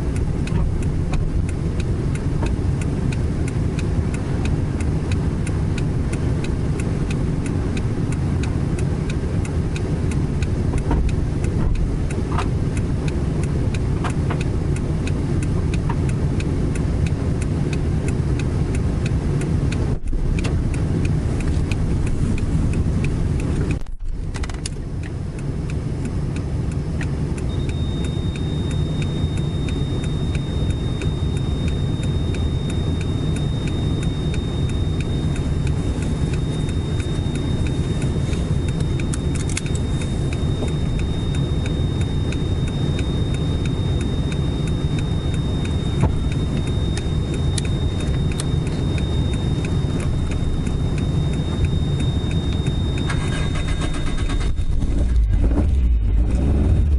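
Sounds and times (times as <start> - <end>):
car engine idling: 0.0 - 56.9
steady high-pitched tone: 25.4 - 56.9.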